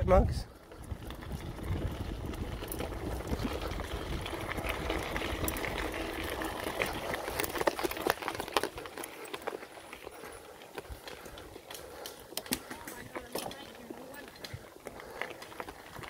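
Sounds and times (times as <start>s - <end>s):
wind rumble on microphone: 0.0s - 7.5s
bike rattling and clicking: 0.0s - 16.0s
bike tyres on dirt trail: 0.0s - 16.0s.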